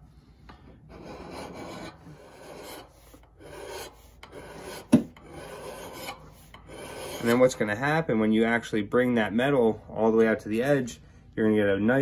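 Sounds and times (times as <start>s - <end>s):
file rasping on axe head: 0.9s - 7.6s.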